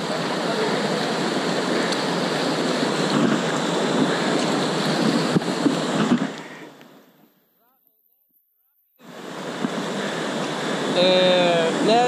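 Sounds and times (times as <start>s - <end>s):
river water rushing: 0.0s - 7.2s, 9.0s - 12.0s
wind buffeting microphone: 2.5s - 6.4s.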